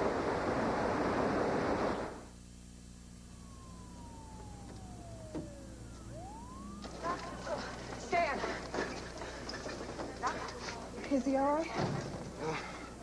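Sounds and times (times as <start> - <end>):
low engine hum: 0.0 - 8.8
ambulance siren wailing: 3.2 - 9.6.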